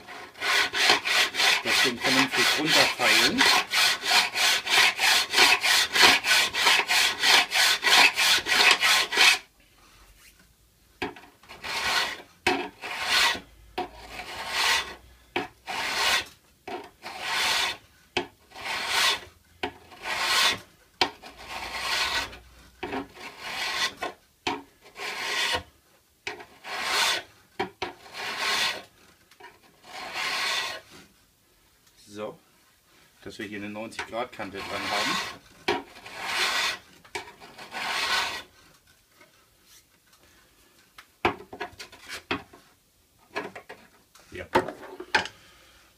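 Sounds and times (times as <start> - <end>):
file rasping on steel: 0.0 - 9.5, 11.4 - 17.8, 18.5 - 24.2, 24.8 - 25.7, 26.3 - 28.9, 29.6 - 31.0, 34.3 - 38.5.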